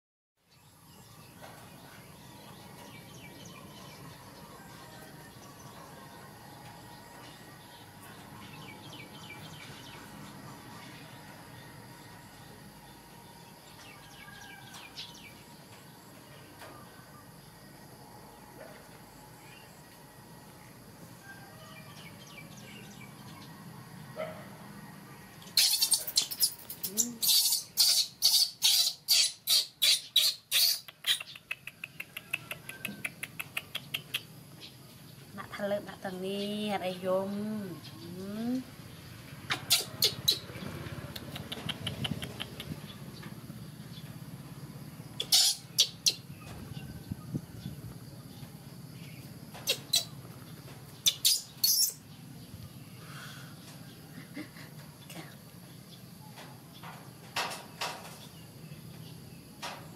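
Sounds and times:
baby monkey screaming: 0:25.6 - 0:31.2, 0:39.5 - 0:40.5, 0:45.2 - 0:46.2, 0:49.6 - 0:50.2, 0:51.0 - 0:52.0
baby monkey squeaking: 0:25.6 - 0:31.3, 0:39.5 - 0:40.5, 0:45.2 - 0:46.2, 0:49.6 - 0:50.2, 0:51.0 - 0:52.0.

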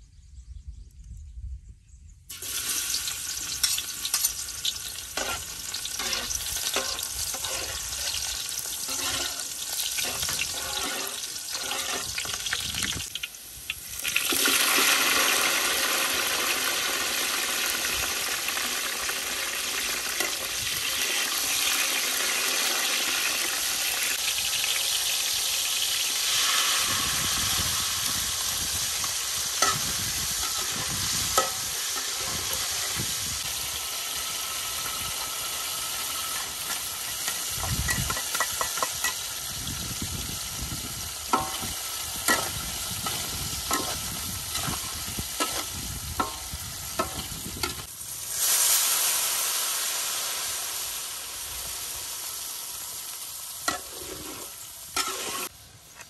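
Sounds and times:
metal utensils scraping a wok: 0:02.3 - 0:12.6, 0:26.2 - 0:33.4, 0:41.3 - 0:48.9, 0:53.6 - 0:56.0
food sizzling in oil: 0:02.3 - 0:56.0
water hissing in hot wok: 0:02.3 - 0:56.0.

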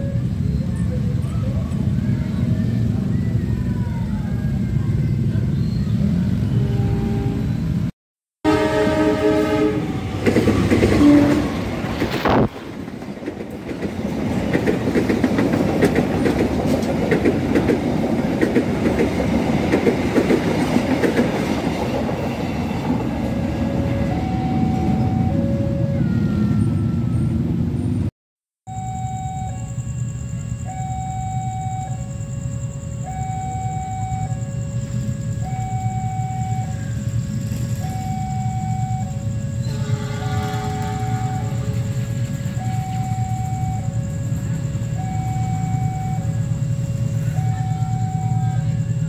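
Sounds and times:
train horn chord: 0:06.5 - 0:07.6, 0:08.4 - 0:10.3, 0:10.9 - 0:11.6, 0:39.4 - 0:42.7
train wheels clattering past: 0:10.1 - 0:24.0.

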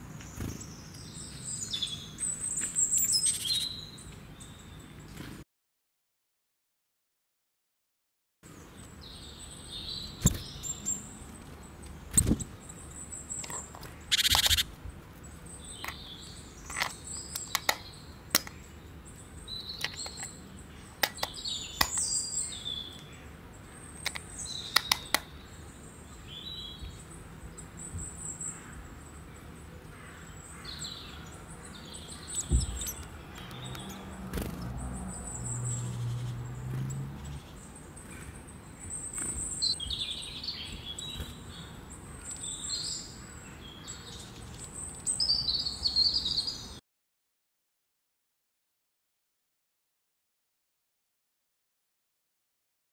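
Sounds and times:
small birds chirping: 0:00.0 - 0:05.3, 0:08.5 - 0:46.8.

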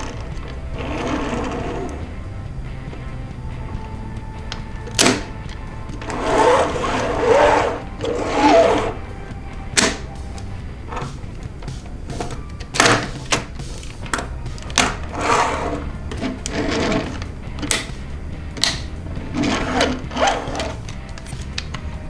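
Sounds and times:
plastic parts scraping and rattling: 0:10.9 - 0:17.9, 0:18.6 - 0:21.9
plastic clicks and snaps: 0:17.2 - 0:19.0, 0:20.7 - 0:22.0.

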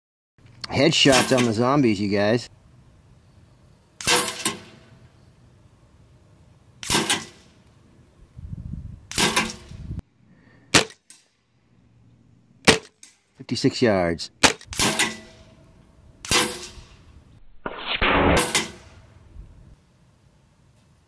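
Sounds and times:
air rifle shots: 0:04.0 - 0:04.9, 0:06.8 - 0:07.6, 0:09.1 - 0:09.8, 0:10.7 - 0:11.2, 0:12.6 - 0:13.2, 0:14.4 - 0:15.5, 0:16.2 - 0:17.0, 0:17.7 - 0:19.1.

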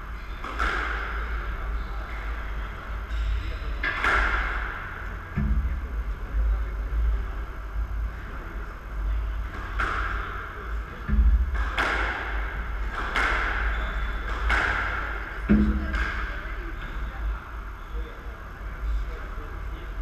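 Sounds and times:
squash ball knocks: 0:03.8 - 0:06.0, 0:09.5 - 0:16.5.

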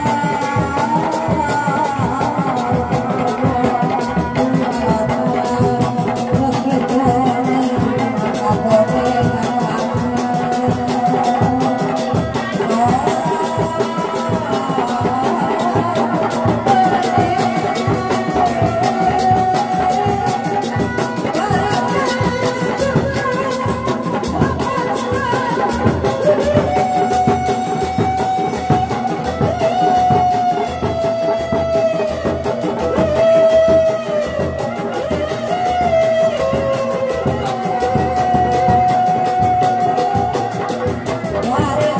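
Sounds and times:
drums beating fast rhythm: 0:00.0 - 0:41.9
wavering melody line: 0:11.6 - 0:41.9.

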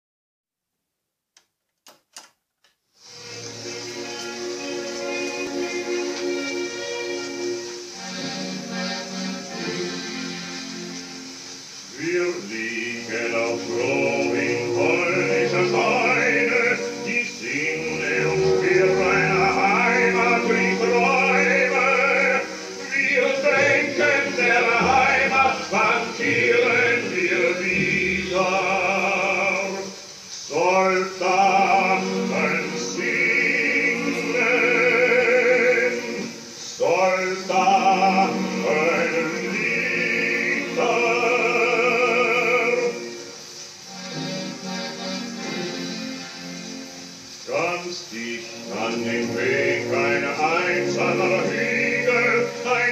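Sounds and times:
instrumental accompaniment: 0:03.2 - 0:11.6, 0:12.4 - 0:29.9, 0:37.5 - 0:47.3
singing with strong vibrato: 0:03.2 - 0:52.9.

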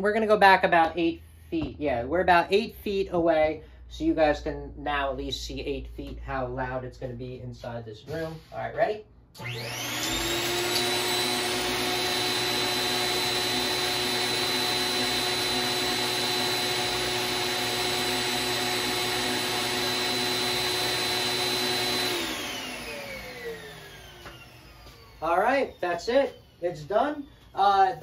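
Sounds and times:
vacuum motor roaring with whine: 0:09.4 - 0:28.0.

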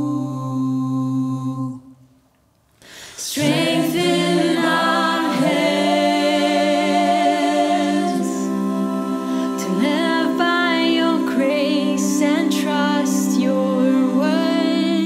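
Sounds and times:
voices singing over chords: 0:03.2 - 0:15.0.

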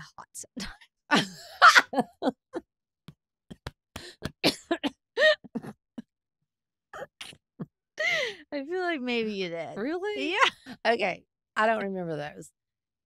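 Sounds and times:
women laughing: 0:01.1 - 0:02.6.

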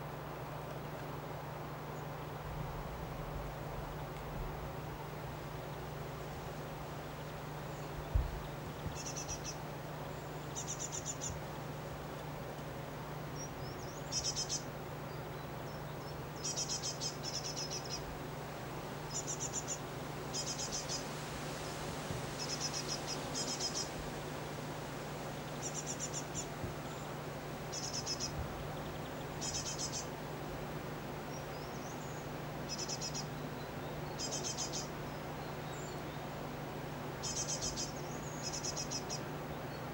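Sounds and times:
nestlings begging calls: 0:08.9 - 0:09.6, 0:13.6 - 0:14.7, 0:16.4 - 0:18.1, 0:19.1 - 0:21.0, 0:22.4 - 0:24.0, 0:25.6 - 0:27.1, 0:27.7 - 0:30.2, 0:31.3 - 0:33.4, 0:34.0 - 0:35.0, 0:37.2 - 0:39.3.

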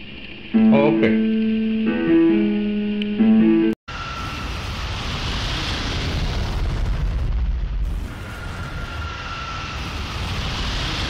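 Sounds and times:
faint high whine: 0:03.9 - 0:06.6, 0:07.8 - 0:11.0.

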